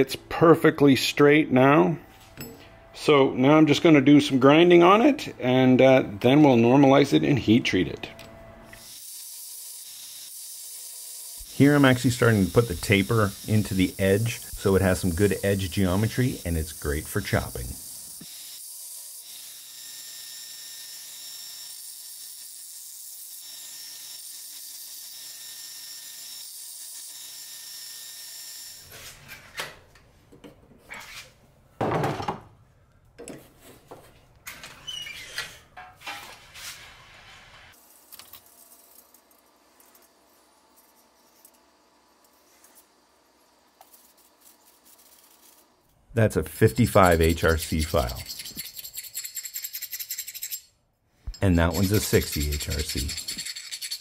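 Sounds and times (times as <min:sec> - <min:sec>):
belt grinder grinding steel: 0:08.7 - 0:28.9, 0:46.6 - 0:50.7, 0:51.3 - 0:54.0.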